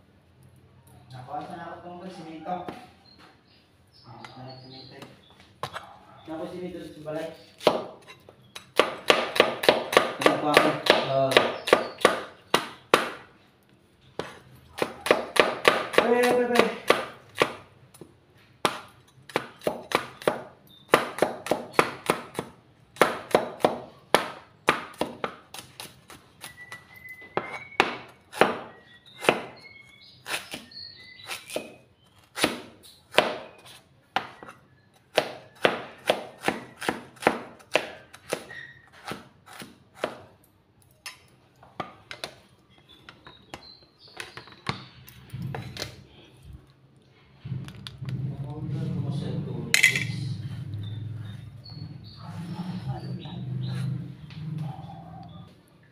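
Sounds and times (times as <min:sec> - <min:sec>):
cleaver chopping on cutting board: 0:07.6 - 0:08.0, 0:08.8 - 0:13.2, 0:27.4 - 0:29.6, 0:35.1 - 0:40.3.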